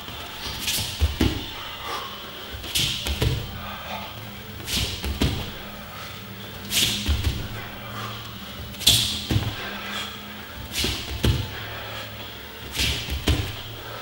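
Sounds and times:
hands and feet thudding on mats: 0.0s - 1.8s, 2.5s - 3.9s, 4.5s - 5.9s, 6.5s - 9.9s, 10.6s - 11.9s, 12.6s - 14.0s
sharp hissing breath: 7.7s - 14.0s.

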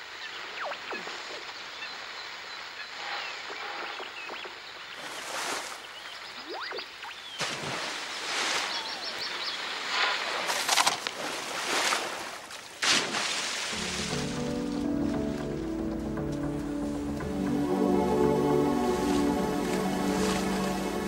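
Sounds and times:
water splashes: 4.9s - 15.4s, 18.5s - 21.0s.

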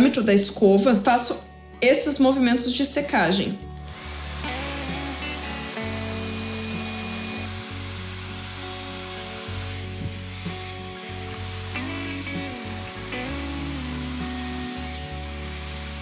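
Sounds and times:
background music with held chords: 0.0s - 16.0s
hair dryer blowing: 3.8s - 16.0s.

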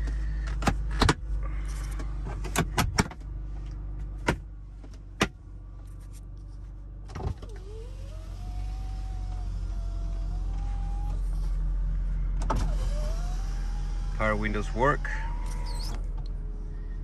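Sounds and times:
car engine idling: 0.0s - 17.0s
power window motor whine: 7.2s - 11.7s, 12.4s - 16.5s.

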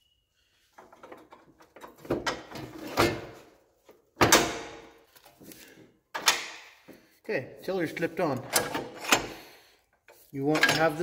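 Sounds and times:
metal parts clanking: 8.3s - 9.4s, 10.4s - 11.0s.

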